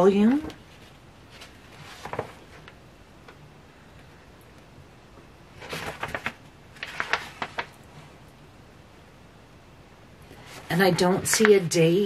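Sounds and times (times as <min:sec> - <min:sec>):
cardstock rustling and crackling: 0:00.6 - 0:02.8, 0:05.6 - 0:07.9.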